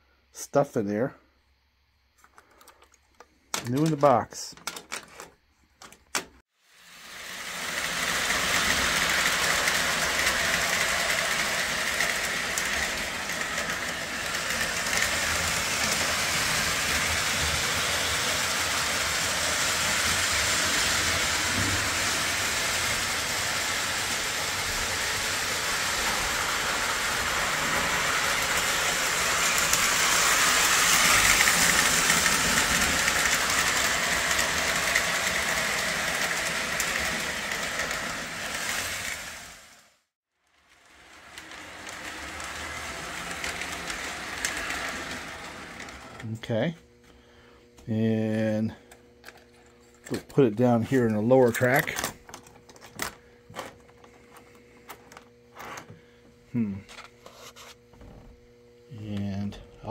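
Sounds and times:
model trains whirring on rails: 6.6 - 46.8.

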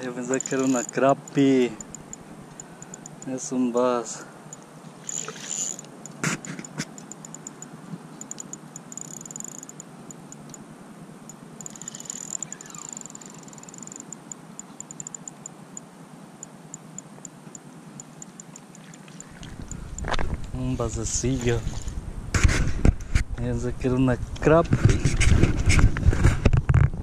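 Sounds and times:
spinning reel ticking: 0.2 - 3.3, 4.5 - 10.6, 11.6 - 15.5.

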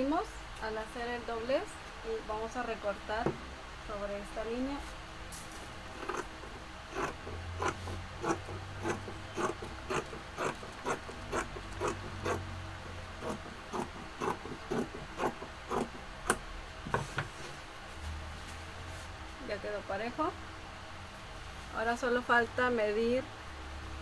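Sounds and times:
scissors cutting fabric: 6.0 - 6.3, 6.9 - 12.5, 13.2 - 16.4.

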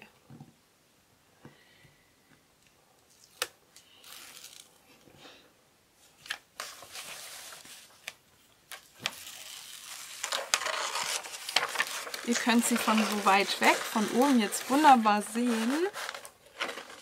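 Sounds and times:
plastic film rustling and crackling: 3.1 - 5.0, 6.2 - 17.0.

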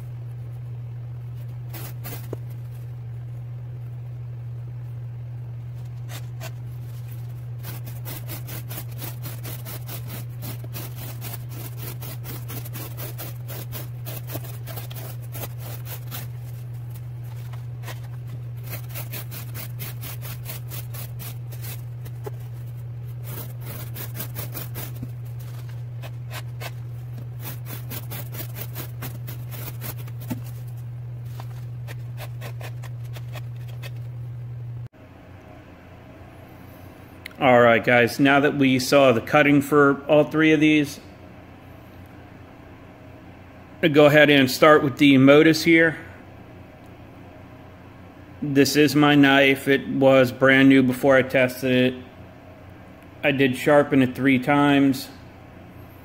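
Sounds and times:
steady low hum: 0.0 - 56.0
knife slicing cardboard: 1.6 - 2.5, 7.6 - 34.0.

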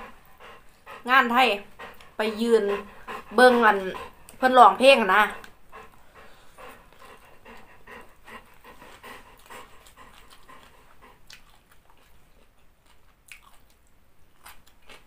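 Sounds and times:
chewing crunchy food: 6.6 - 15.0.

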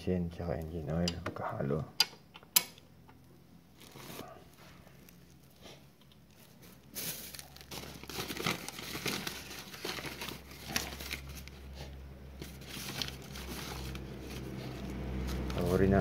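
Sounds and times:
plastic bag crinkling: 3.7 - 5.6, 6.2 - 16.0.

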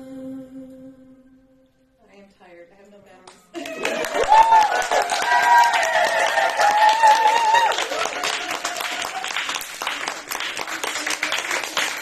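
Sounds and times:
high wavering cheers: 3.6 - 9.5
audience applauding: 3.6 - 12.0.

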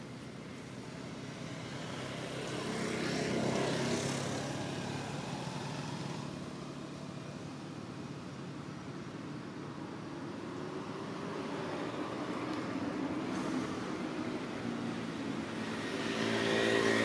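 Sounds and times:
engine passing by: 0.6 - 8.0, 10.3 - 17.0.

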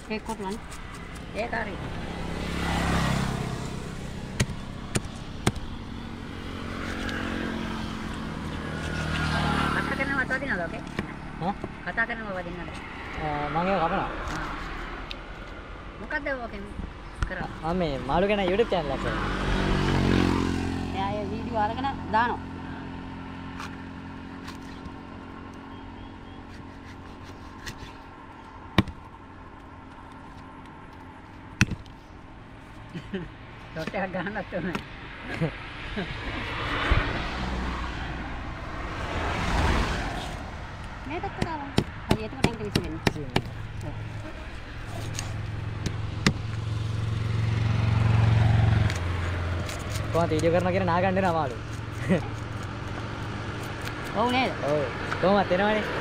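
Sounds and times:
road traffic hum: 0.0 - 56.0
knife chopping on wooden block: 28.8 - 29.0.

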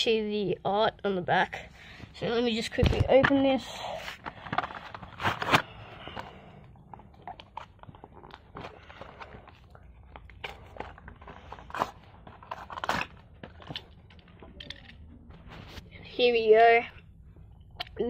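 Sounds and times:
packaging crackling and rustling: 4.1 - 15.9.

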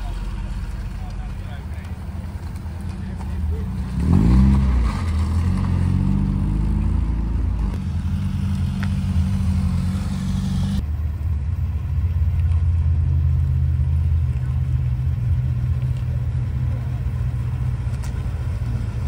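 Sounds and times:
car engine accelerating: 0.0 - 19.0
car engine running low: 0.0 - 19.0.

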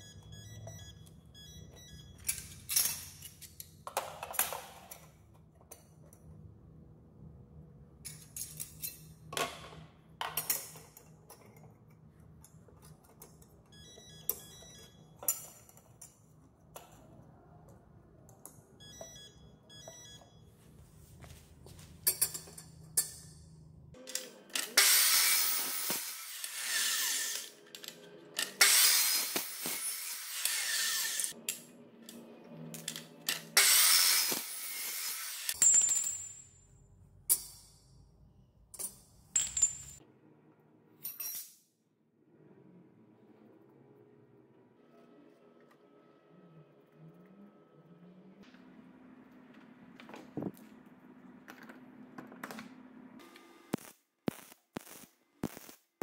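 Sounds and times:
cut-off saw cutting metal tube: 24.6 - 27.6, 28.6 - 31.3, 33.6 - 35.6.

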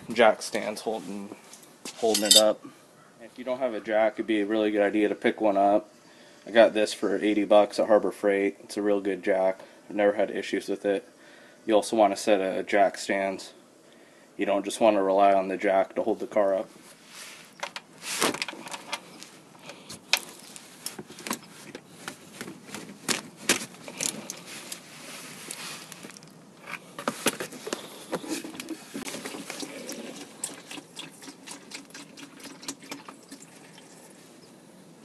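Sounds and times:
wrench and metal parts clicking: 2.1 - 2.5.

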